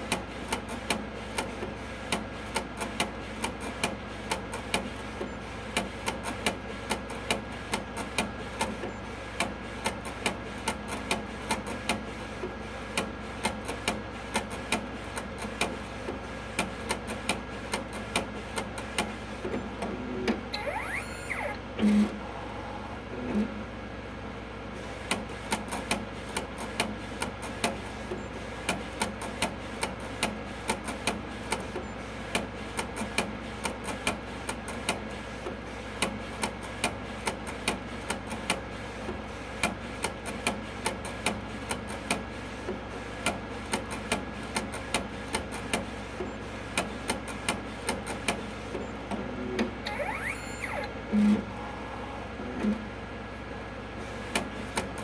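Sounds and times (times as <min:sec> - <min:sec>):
printer machine hum: 0:00.0 - 0:55.0
brief rising whine: 0:49.8 - 0:52.3.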